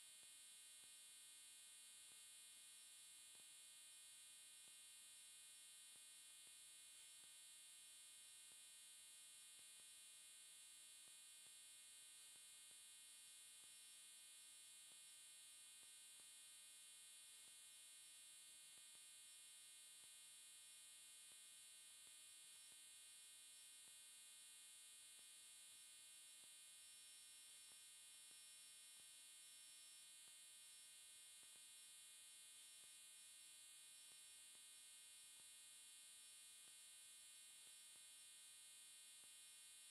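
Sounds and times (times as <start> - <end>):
faint electrical hum: 0.0 - 39.9.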